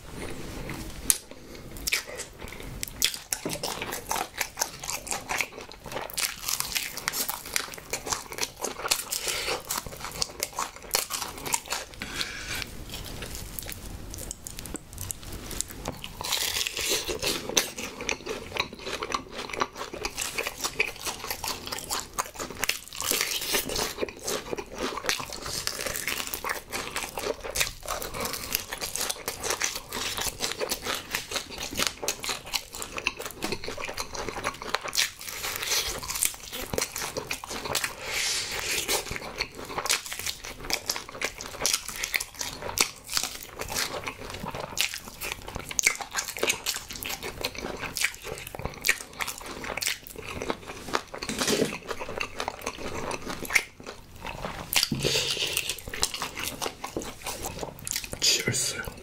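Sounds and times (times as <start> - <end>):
close chewing and biting: 0.2 - 59.0.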